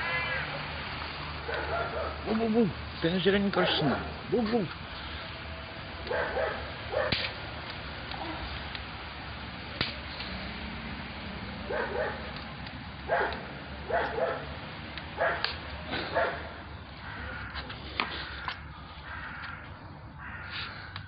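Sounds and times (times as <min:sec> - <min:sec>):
dog barking: 0:01.4 - 0:02.3, 0:03.6 - 0:04.1, 0:06.1 - 0:07.3, 0:11.7 - 0:12.3, 0:13.1 - 0:14.5, 0:15.2 - 0:16.6.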